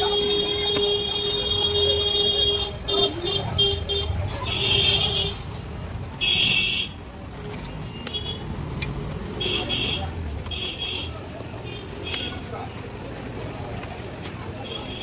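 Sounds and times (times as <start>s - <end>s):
vehicle horns honking: 0.0s - 5.5s, 9.4s - 12.4s, 14.6s - 15.0s
low traffic rumble: 0.0s - 15.0s.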